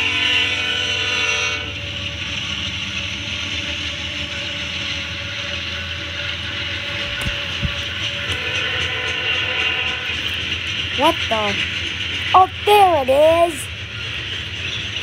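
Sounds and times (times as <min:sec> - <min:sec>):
locomotive air horn chord: 0:00.0 - 0:02.0, 0:05.1 - 0:10.4
train rumble and hiss: 0:00.0 - 0:15.0.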